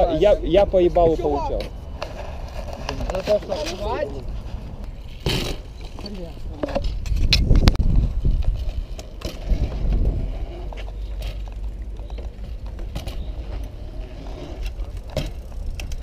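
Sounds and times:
bike tyres rumbling on concrete: 0.0s - 16.0s.

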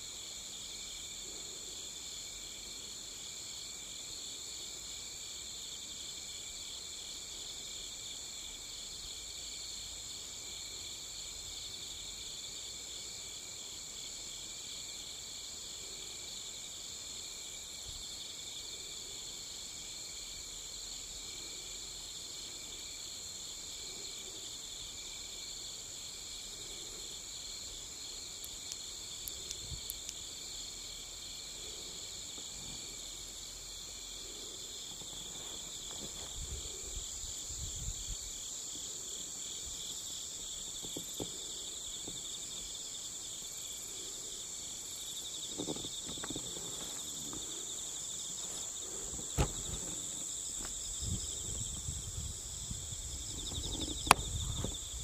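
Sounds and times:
crickets and insects trilling: 0.0s - 55.0s
faint ticks: 28.4s - 30.3s
low thumps: 49.2s - 50.0s.

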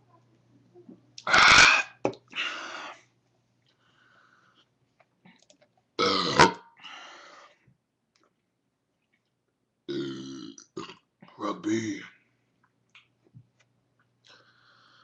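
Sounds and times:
man burping loudly: 1.2s - 2.0s, 6.0s - 6.7s, 9.9s - 11.0s.

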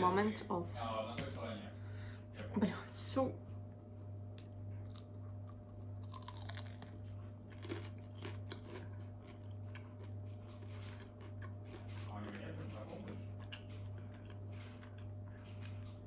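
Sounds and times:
steady low hum: 0.0s - 16.0s
person chewing crunchy food: 4.4s - 16.0s.

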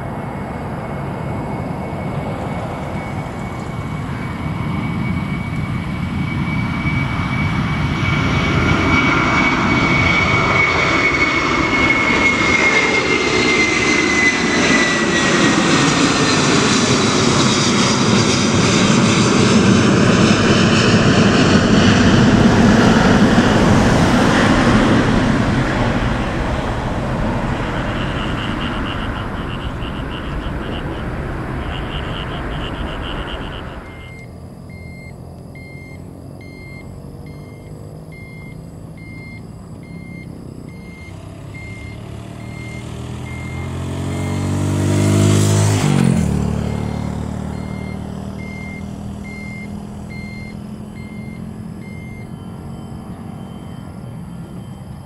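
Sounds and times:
jet airliner taking off: 0.0s - 55.0s
short repeated beeps: 31.6s - 44.6s, 46.6s - 55.0s.

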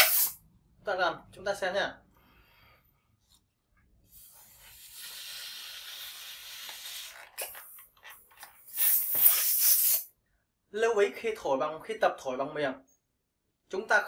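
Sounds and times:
breath blown into balloon: 4.1s - 7.8s, 8.6s - 10.1s.

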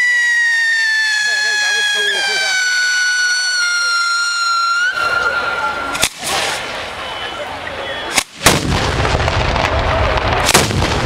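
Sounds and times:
firecrackers crackling: 0.0s - 11.0s
heavy bangs: 8.1s - 11.0s.

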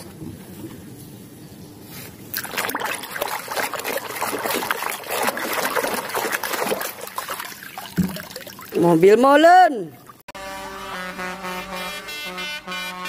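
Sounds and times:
hands splashing in water: 2.3s - 8.8s.

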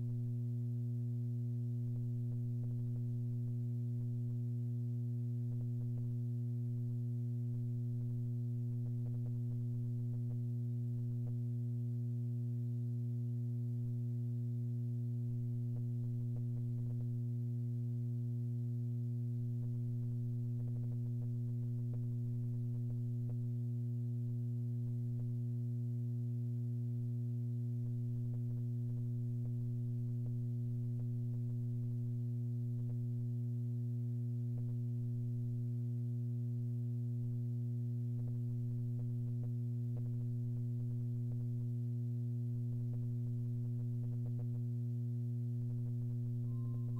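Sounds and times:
steady electrical hum: 0.0s - 46.9s.

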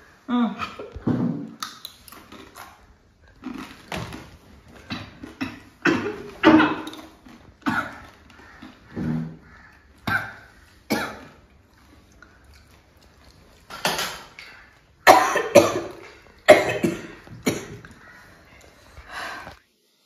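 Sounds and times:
person coughing: 5.0s - 7.0s, 10.0s - 11.4s, 15.1s - 17.8s.

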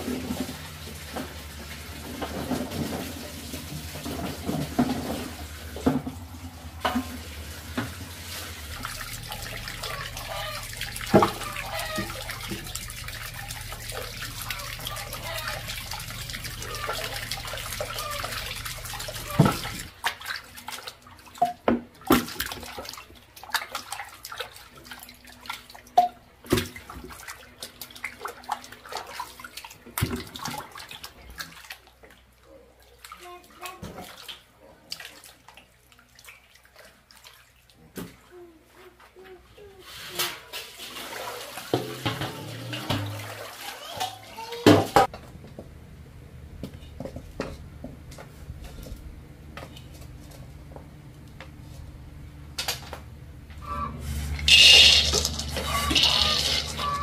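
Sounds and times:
splashes and knocks in water: 0.0s - 32.2s, 33.0s - 38.3s, 40.3s - 45.2s
tap water pouring into basin: 0.0s - 32.2s, 40.5s - 45.1s, 54.3s - 57.0s
roots scrubbed and splashed: 54.0s - 57.0s.

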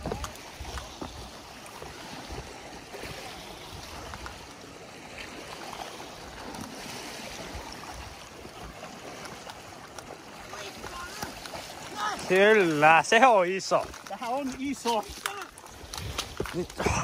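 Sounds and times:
river rapid rushing: 5.2s - 17.0s.

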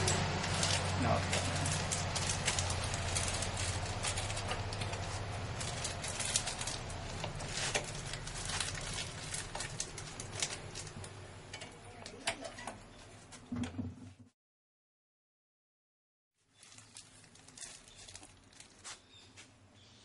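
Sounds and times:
plastic packets rustling: 0.0s - 11.2s, 16.5s - 19.4s
low hum: 0.0s - 11.8s.

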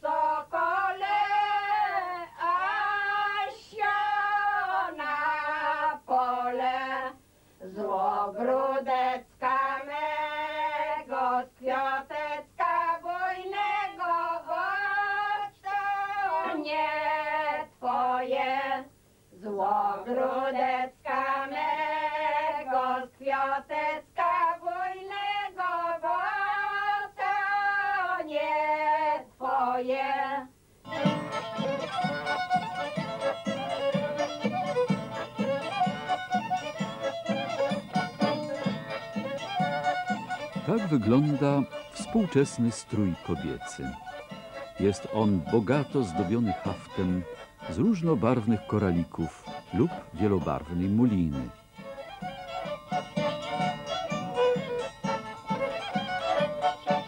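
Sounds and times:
women singing folk song: 0.0s - 48.6s
folk band playing: 16.3s - 16.9s, 30.9s - 57.0s.

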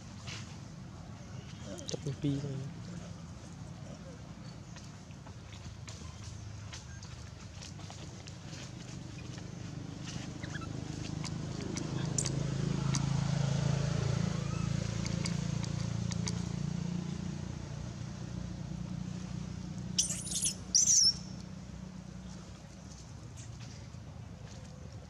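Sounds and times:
vehicle engine humming low: 0.0s - 25.0s
baby monkey squealing: 10.0s - 13.1s, 14.4s - 16.4s, 20.0s - 21.3s.

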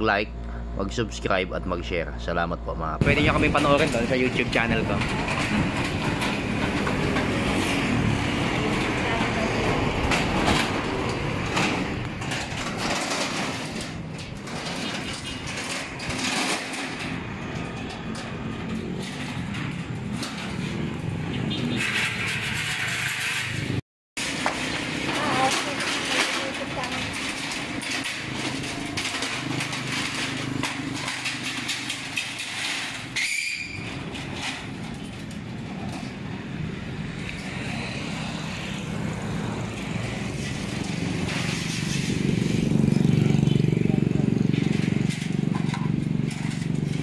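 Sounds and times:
steady engine hum: 0.0s - 14.8s, 35.5s - 47.0s
metal shutter slats rattling: 3.0s - 47.0s.

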